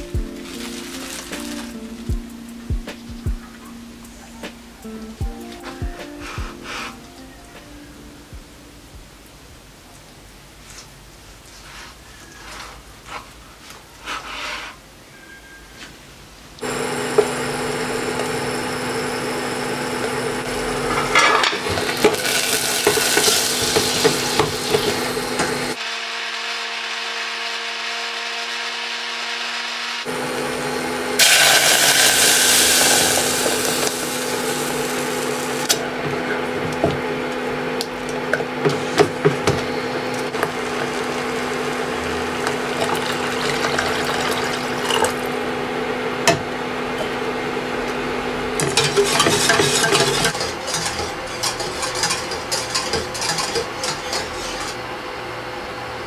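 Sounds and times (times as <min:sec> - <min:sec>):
flour frying in oil sizzling: 0:00.0 - 0:02.1, 0:16.6 - 0:25.8, 0:31.2 - 0:35.8, 0:38.8 - 0:45.4, 0:48.5 - 0:54.9
spatula stirring and knocking pot: 0:48.6 - 0:54.8.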